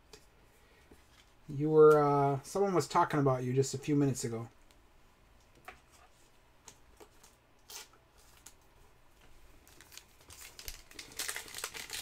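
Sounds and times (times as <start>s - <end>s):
card pack rustling: 9.6s - 12.0s.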